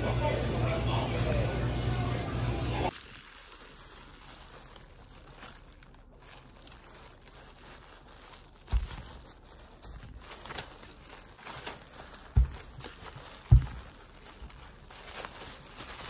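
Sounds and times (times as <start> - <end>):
plastic film crinkling: 2.9 - 16.0
dull thumps: 8.6 - 10.0, 11.6 - 15.1.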